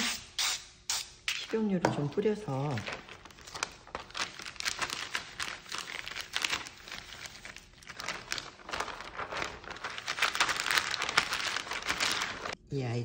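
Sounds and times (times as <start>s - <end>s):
plastic sheet crinkling: 2.5s - 12.6s.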